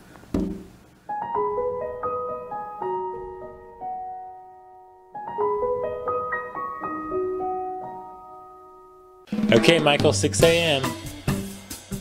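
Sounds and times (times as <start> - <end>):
slow gentle piano melody: 1.0 - 9.3.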